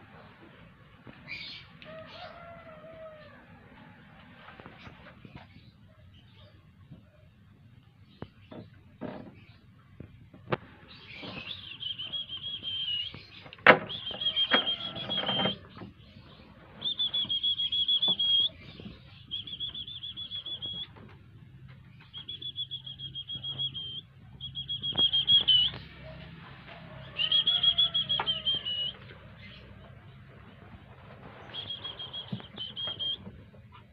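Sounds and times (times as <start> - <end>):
high trilling calls: 10.9 - 15.8, 16.8 - 21.0, 22.0 - 26.0, 27.0 - 29.7, 31.5 - 33.3.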